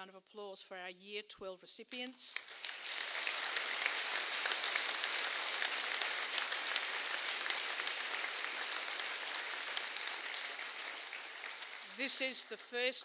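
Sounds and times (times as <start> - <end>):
audience applauding: 2.4 - 12.8.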